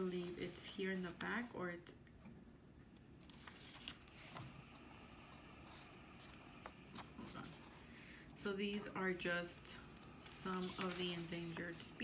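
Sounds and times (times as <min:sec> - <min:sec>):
book pages being turned: 0:00.0 - 0:01.6, 0:03.2 - 0:07.8, 0:10.3 - 0:12.0.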